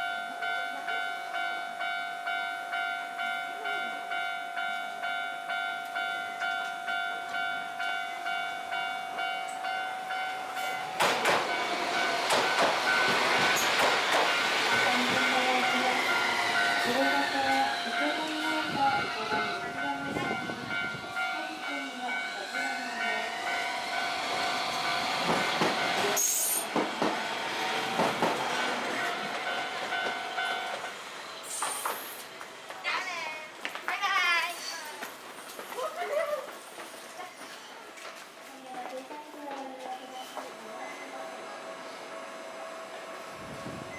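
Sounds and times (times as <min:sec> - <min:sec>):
level crossing warning bell: 0:00.0 - 0:31.1
tram wheels on rails: 0:00.0 - 0:43.9
tram wheels clicking over rail joints: 0:10.9 - 0:20.8, 0:21.6 - 0:31.0.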